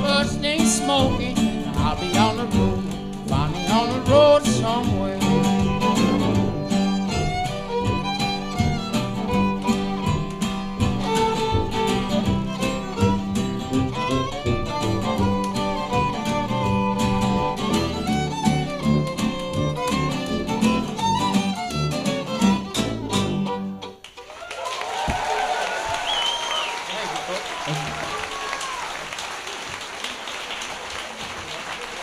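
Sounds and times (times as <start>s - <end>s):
steady bass: 0.0s - 23.7s
guitar: 0.0s - 24.2s
fiddle playing: 0.0s - 24.3s, 26.9s - 28.9s.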